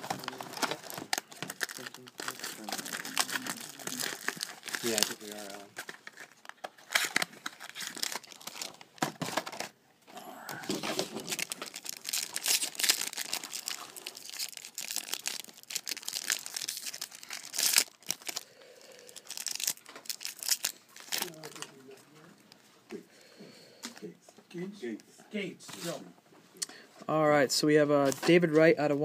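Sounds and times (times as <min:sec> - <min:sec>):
plastic wrapping crinkling: 0:00.0 - 0:09.8, 0:10.6 - 0:22.7.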